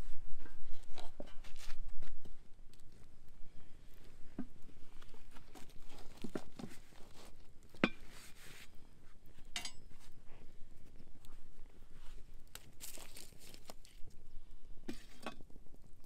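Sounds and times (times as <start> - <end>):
cast iron pot knocking and clanking: 9.5 - 9.9.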